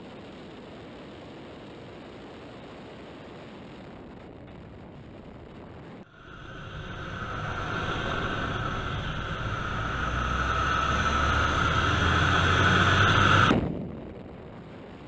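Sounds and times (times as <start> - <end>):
propeller plane engine whine: 6.0 - 13.9.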